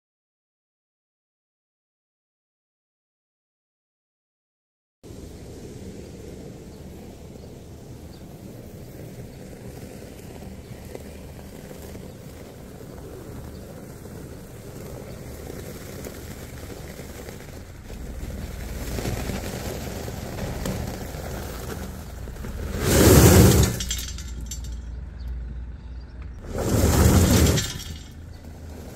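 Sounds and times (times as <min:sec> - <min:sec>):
car engine rumble: 0:05.1 - 0:28.9
tyres crunching on gravel: 0:08.1 - 0:25.6, 0:26.2 - 0:28.9.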